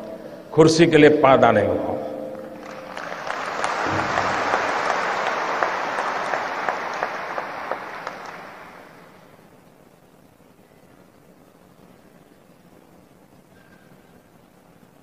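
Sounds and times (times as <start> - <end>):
large audience applauding: 2.4 - 9.3.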